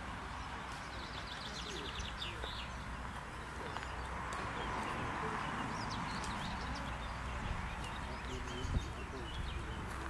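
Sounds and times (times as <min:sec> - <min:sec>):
faint distant voices: 0:00.0 - 0:10.0
small birds chirping: 0:00.0 - 0:10.0.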